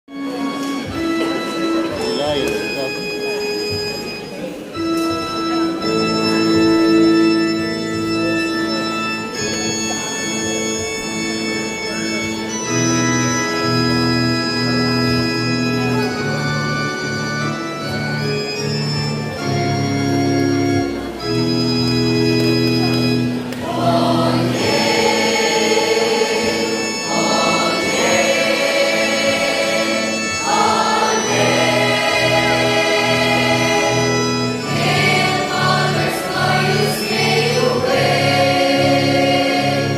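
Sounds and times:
organ-style keyboard chords: 0:00.1 - 0:39.9
mixed-voice choir singing: 0:23.6 - 0:39.9.

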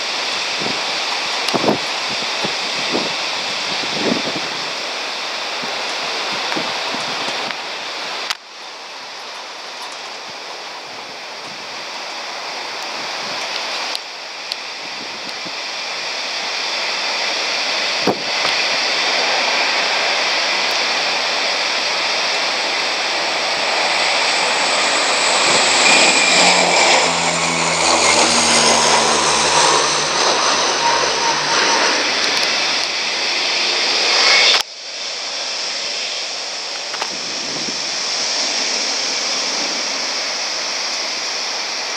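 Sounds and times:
jet engines roaring: 0:00.0 - 0:41.9
high whining tones: 0:22.5 - 0:34.6.

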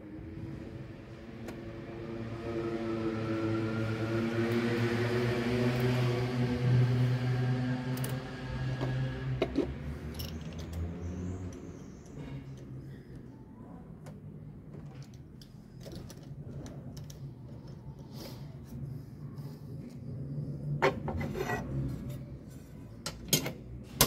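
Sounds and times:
vehicle engine passing by: 0:00.3 - 0:12.6, 0:18.6 - 0:22.5.

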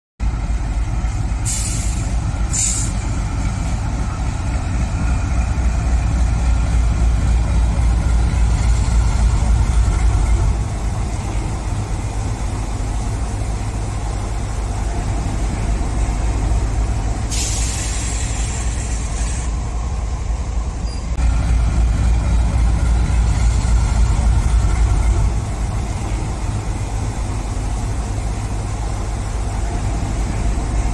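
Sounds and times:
diesel locomotive engine drone: 0:00.2 - 0:30.9
air brake hiss: 0:01.4 - 0:03.1, 0:17.3 - 0:19.6
air hisses: 0:01.4 - 0:03.1, 0:17.3 - 0:19.6.

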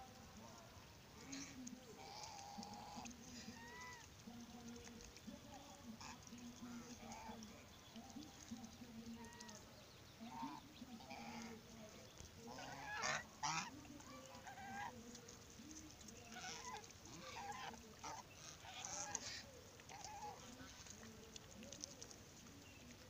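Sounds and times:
geese honking: 0:01.9 - 0:04.1, 0:10.2 - 0:11.6, 0:12.4 - 0:15.2, 0:16.0 - 0:21.1.

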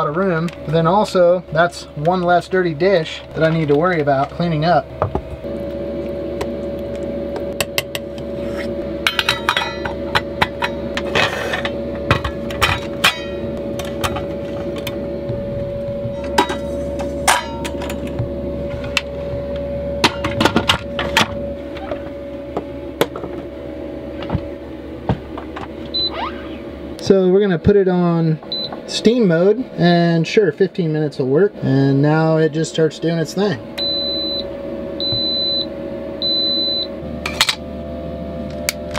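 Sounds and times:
steady hum: 0:00.0 - 0:38.9.

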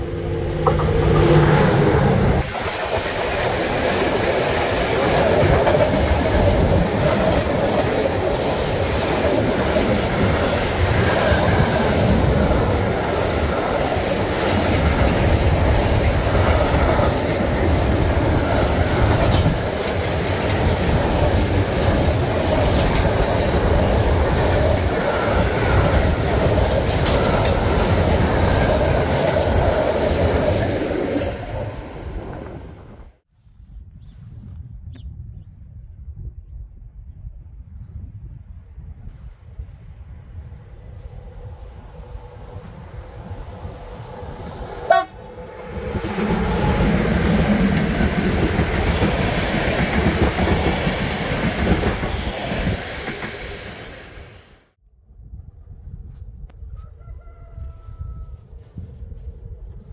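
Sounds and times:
train wheels clattering on rails: 0:00.6 - 0:31.6, 0:45.7 - 0:54.3.

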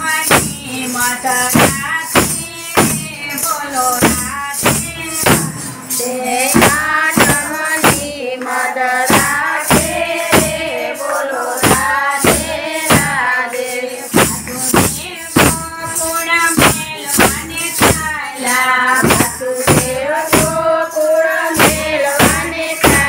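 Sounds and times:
jingle tambourines: 0:00.0 - 0:23.0
women singing together: 0:00.0 - 0:23.0
hand claps: 0:06.5 - 0:20.5, 0:21.5 - 0:23.0.

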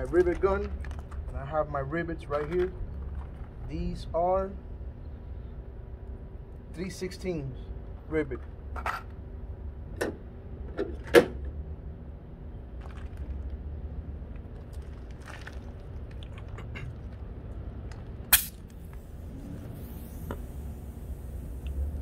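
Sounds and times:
low steady rumble: 0:00.0 - 0:22.0
air hiss: 0:18.3 - 0:22.0.

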